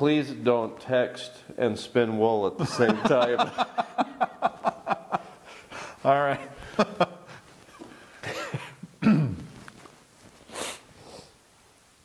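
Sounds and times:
man laughing: 2.6 - 5.4, 6.1 - 9.0
man coughing: 8.2 - 9.5.

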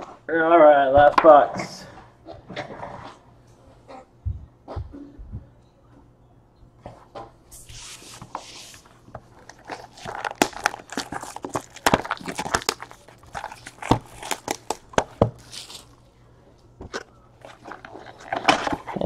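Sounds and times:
plastic wrap crinkling: 7.6 - 16.1, 16.9 - 19.0.

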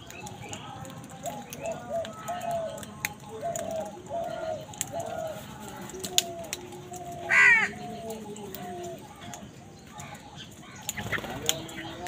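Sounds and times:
birds calling: 0.0 - 12.0
loud harsh crow caw: 7.3 - 7.8.

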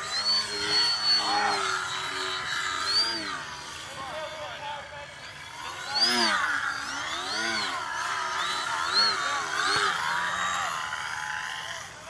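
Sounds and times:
model plane motor whine: 0.0 - 12.0.

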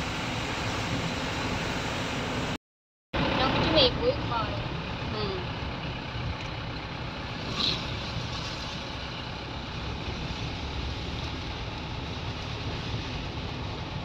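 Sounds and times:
vehicle engine rumble: 0.0 - 2.6, 3.2 - 14.0
tyre noise on wet road: 3.2 - 14.0.

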